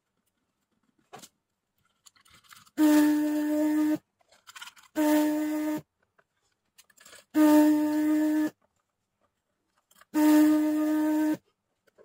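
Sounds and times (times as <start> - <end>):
vacuum pump humming with air hiss: 7.3 - 8.6, 10.0 - 11.4.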